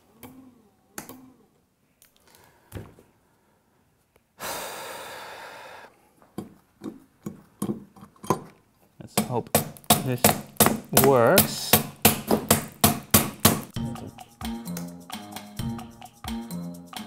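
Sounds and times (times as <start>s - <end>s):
person sighing: 4.4s - 5.9s
handling knocks and clicks: 6.3s - 13.8s.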